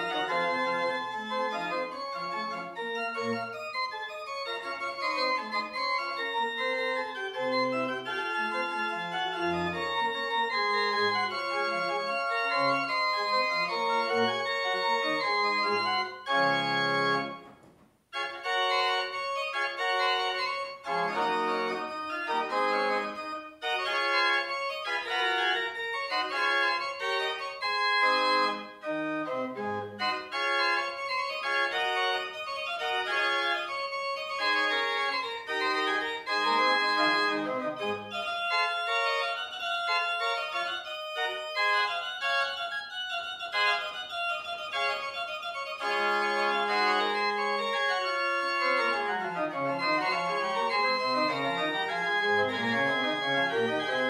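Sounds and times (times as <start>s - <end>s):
pipe organ playing: 0.0s - 17.5s, 18.1s - 54.0s.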